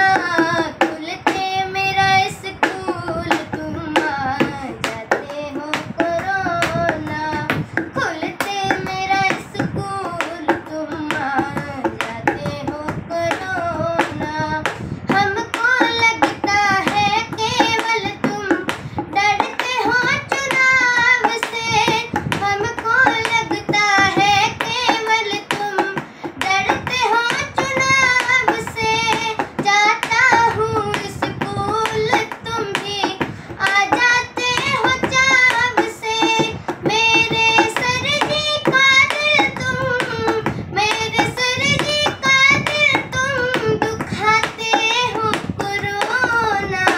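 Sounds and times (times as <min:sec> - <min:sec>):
boy singing: 0:00.0 - 0:46.9
hand taps: 0:00.0 - 0:46.9.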